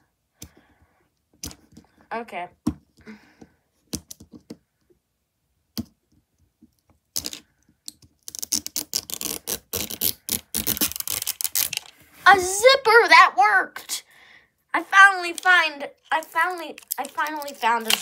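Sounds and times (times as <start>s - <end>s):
fingernails scratching plastic wrap: 8.3s - 11.9s
plastic wrap tearing crackle: 8.3s - 11.9s, 16.2s - 18.0s.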